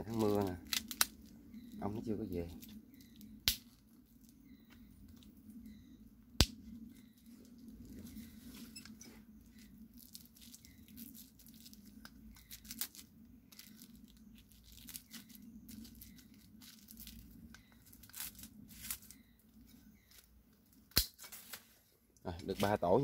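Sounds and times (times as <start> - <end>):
low steady hum: 0.0 - 23.0
plastic bag crinkling: 9.5 - 19.2
pruning shears snipping: 20.9 - 21.7.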